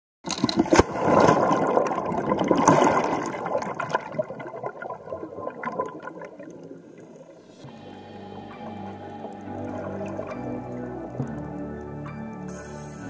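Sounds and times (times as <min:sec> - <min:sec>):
splash into water: 0:00.3 - 0:06.7
underwater churning water and bubbles: 0:00.3 - 0:13.0.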